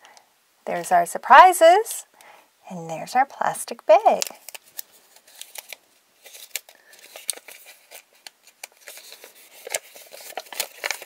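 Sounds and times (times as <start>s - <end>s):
plastic bag crinkling: 4.1s - 11.0s
paper rustling: 4.2s - 11.0s.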